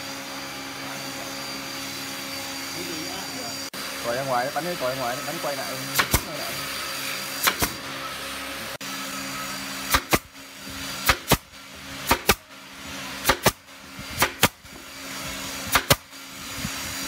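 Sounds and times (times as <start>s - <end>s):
nail gun firing into wood: 6.0s - 6.4s, 7.4s - 7.8s, 9.8s - 10.4s, 11.0s - 12.5s, 13.2s - 14.9s, 15.6s - 16.2s.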